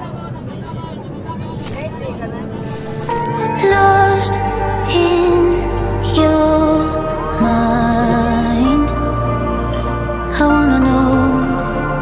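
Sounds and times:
slow song with low bass: 2.6 - 12.0.

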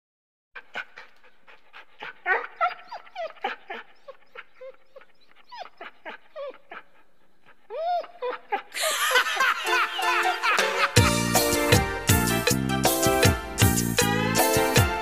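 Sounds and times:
dog whining and yipping: 0.8 - 8.7.

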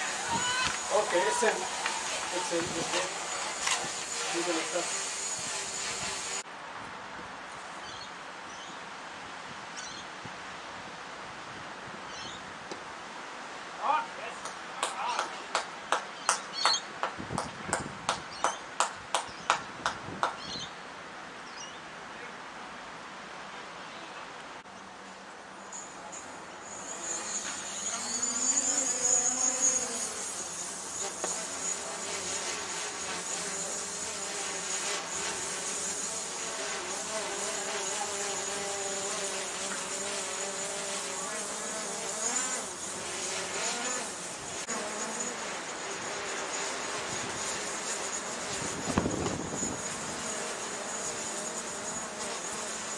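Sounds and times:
buzzing drone: 0.0 - 6.4, 25.8 - 52.9
thin high whine: 0.0 - 6.5, 25.6 - 52.9
steady outdoor hiss: 0.0 - 52.9
faint bird chirps: 7.8 - 8.8, 9.8 - 10.1, 12.1 - 12.4
person clapping hands: 14.4 - 18.2, 18.8 - 20.4.

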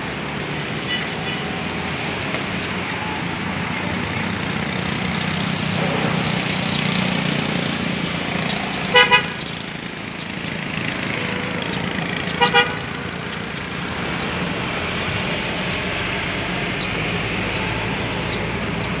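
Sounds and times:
road traffic: 0.0 - 19.0
vehicle horn toots: 8.8 - 9.5, 12.3 - 13.2.

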